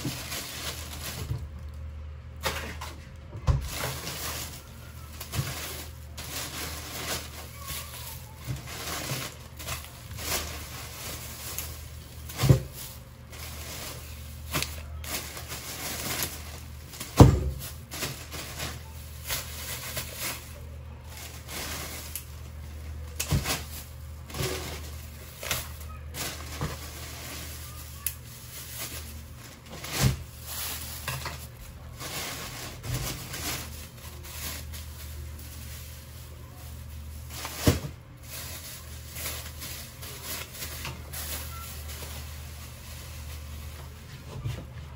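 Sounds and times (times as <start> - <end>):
items knocking and thumping: 0.0 - 1.7, 2.4 - 20.5, 23.1 - 27.6, 37.3 - 41.7
plastic bags rustling: 0.0 - 44.9.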